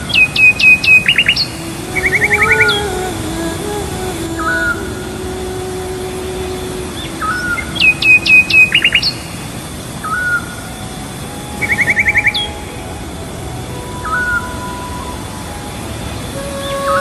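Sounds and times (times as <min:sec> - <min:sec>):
bird trill: 0:00.0 - 0:02.8, 0:07.2 - 0:09.4, 0:11.6 - 0:13.1, 0:14.0 - 0:17.0
birds chirping: 0:00.0 - 0:17.0
steady hiss: 0:00.0 - 0:17.0.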